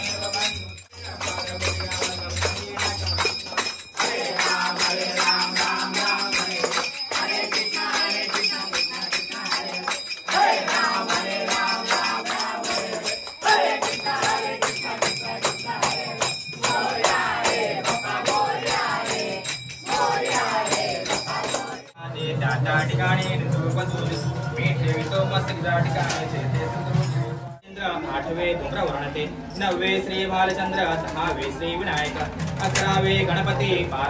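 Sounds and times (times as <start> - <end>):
jingling bell-like percussion: 0.0 - 26.0.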